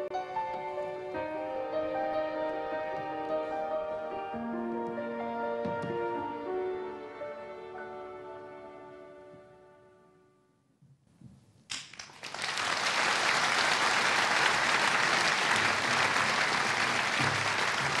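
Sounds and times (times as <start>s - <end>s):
slow music: 0.0s - 10.7s
audience applause: 11.9s - 18.0s.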